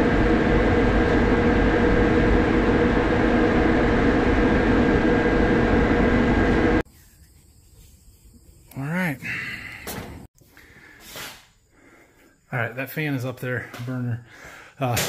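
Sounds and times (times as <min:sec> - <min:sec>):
crane engine rumbling: 0:00.0 - 0:06.8.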